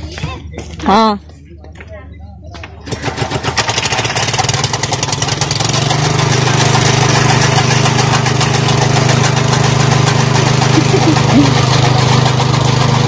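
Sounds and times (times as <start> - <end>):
engine running: 2.9 - 13.0.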